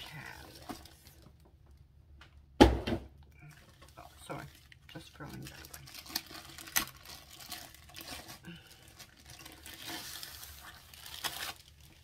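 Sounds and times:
plastic sleeve crinkling: 3.4 - 12.0.

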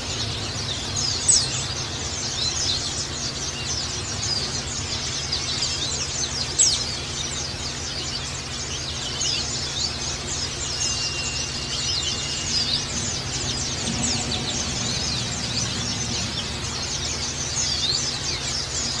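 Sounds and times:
birds twittering: 0.0 - 19.0
low steady hum: 0.0 - 19.0.

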